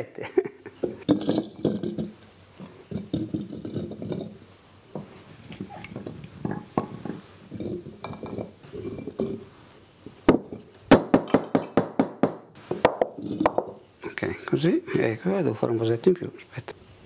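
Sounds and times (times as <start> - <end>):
olives clinking into glass jars: 0.8 - 4.4, 5.5 - 9.5.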